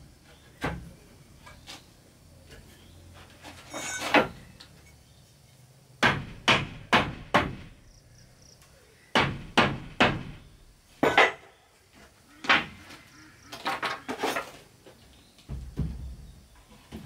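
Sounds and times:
hammer blows on timber: 0:06.0 - 0:07.8.

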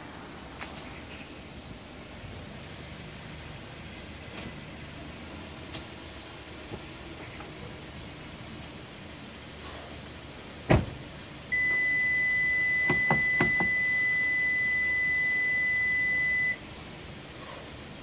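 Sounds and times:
car door slamming: 0:10.6 - 0:11.0, 0:12.8 - 0:14.0
high-pitched car beep: 0:11.5 - 0:16.6.

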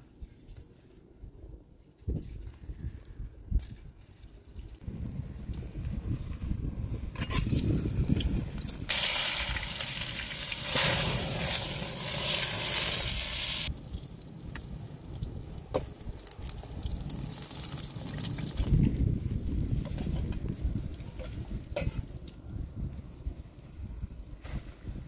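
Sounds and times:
food sizzling in oil: 0:07.5 - 0:18.7.

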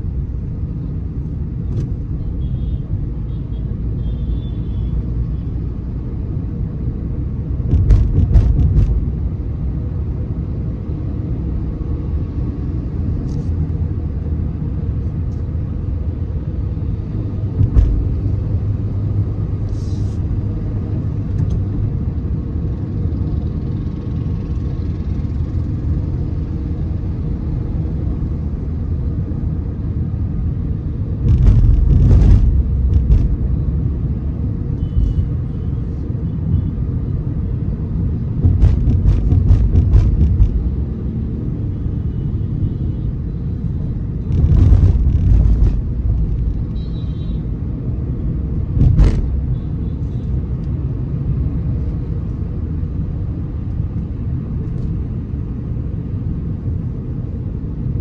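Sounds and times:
car road and engine rumble: 0:00.0 - 0:58.0
rumbling clatter: 0:07.6 - 0:09.2, 0:31.2 - 0:33.6, 0:38.3 - 0:40.8, 0:44.3 - 0:46.6, 0:48.8 - 0:49.5.

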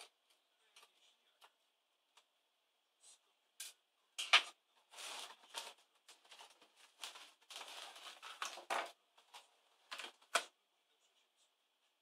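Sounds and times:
laptop casing scraping and rustling: 0:05.0 - 0:10.3.

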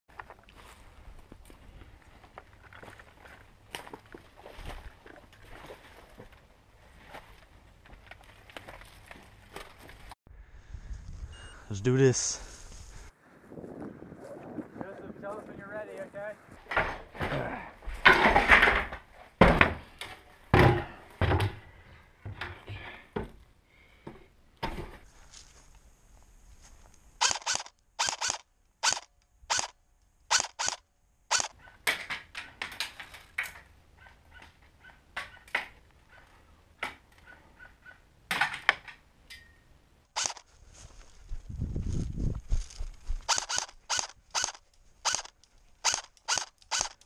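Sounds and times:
sharp knocks and thuds: 0:16.6 - 0:19.9, 0:20.5 - 0:21.6.

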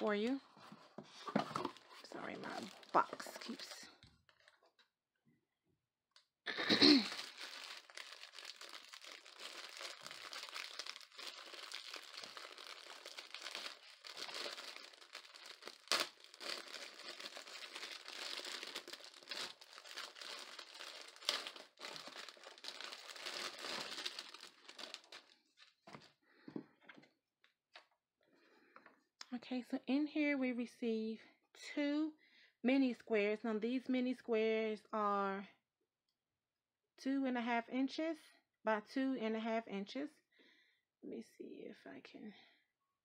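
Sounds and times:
plastic wrapping crinkling: 0:01.5 - 0:04.6, 0:07.0 - 0:26.0.

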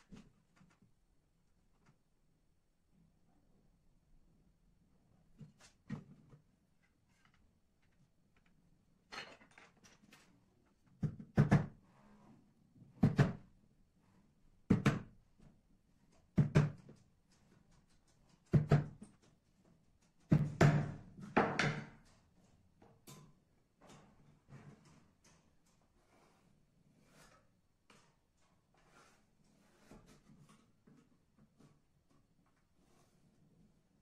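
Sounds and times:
hammer knocking nails into wood: 0:20.3 - 0:22.0.

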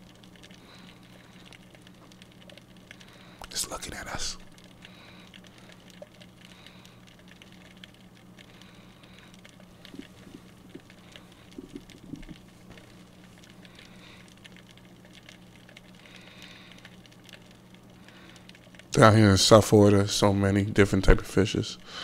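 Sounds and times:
underwater crackle of clicks: 0:00.0 - 0:19.0
low underwater hum: 0:00.0 - 0:22.0.

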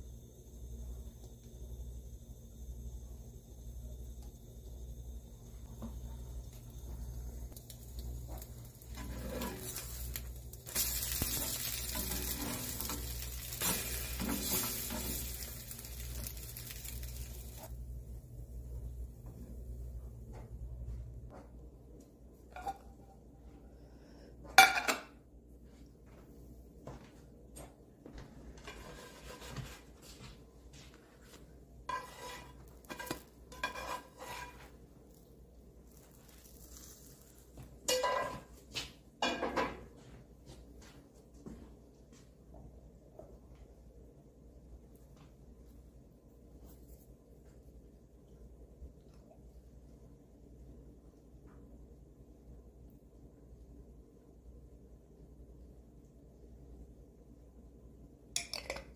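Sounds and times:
french toast sizzling in pan: 0:05.7 - 0:19.0, 0:31.9 - 0:35.2, 0:35.8 - 0:38.5
plastic spatula scraping pan: 0:31.9 - 0:34.7.

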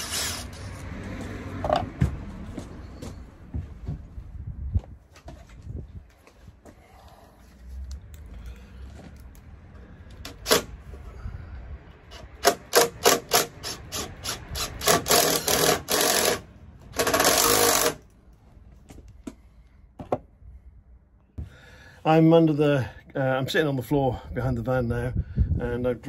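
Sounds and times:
cordless drill driving a screw: 0:12.1 - 0:18.0.

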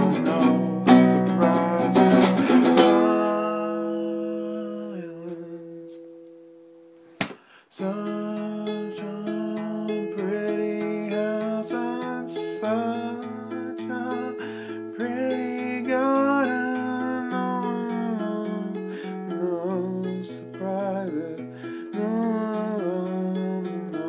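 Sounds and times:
man singing: 0:00.0 - 0:06.2, 0:07.7 - 0:24.0
acoustic guitar: 0:00.0 - 0:24.0
short sharp knock: 0:07.2 - 0:07.4.

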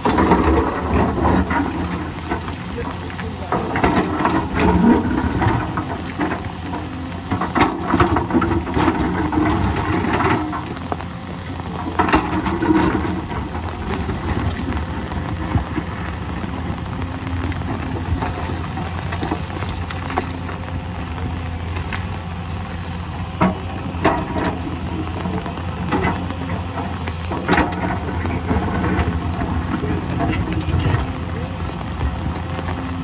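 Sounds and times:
excavator diesel engine running: 0:00.0 - 0:33.0
steel bucket knocking and scraping rock: 0:03.2 - 0:10.7.

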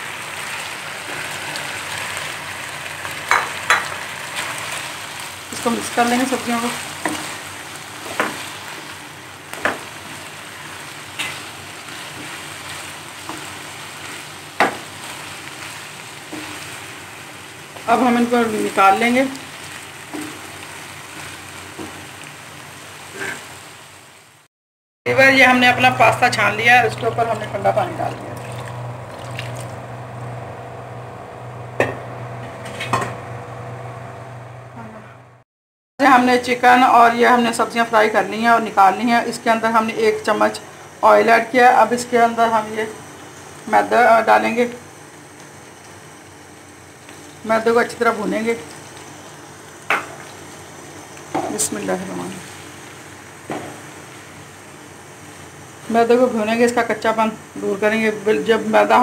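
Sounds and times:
food sizzling in a pan: 0:00.0 - 0:24.5, 0:25.1 - 0:30.4, 0:36.0 - 0:59.0
low hum: 0:25.1 - 0:35.4
water splashing into a colander: 0:26.8 - 0:29.8.

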